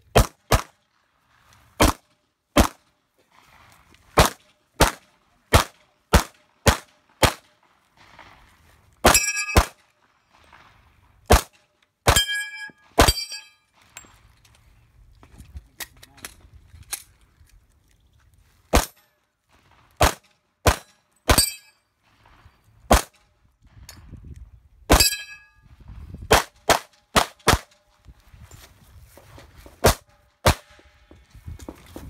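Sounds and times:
pistol shots: 4.2s - 7.4s, 11.3s - 13.3s, 20.0s - 21.6s, 22.9s - 23.1s, 26.3s - 27.7s, 29.8s - 30.8s
steel targets clanging: 9.0s - 9.8s, 12.1s - 14.2s, 21.3s - 21.8s, 24.9s - 25.5s.

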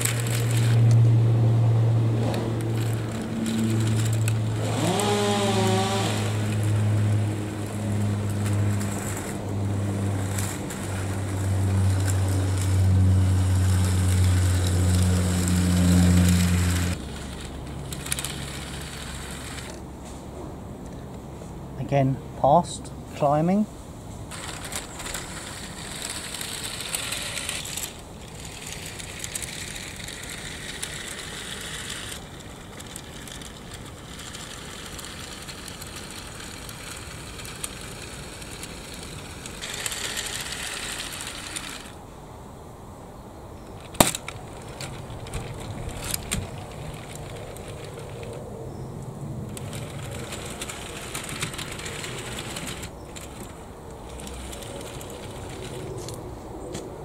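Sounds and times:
small electric motors whirring: 0.0s - 1.0s, 2.2s - 19.8s, 24.3s - 42.0s, 43.8s - 48.4s, 49.4s - 56.2s.

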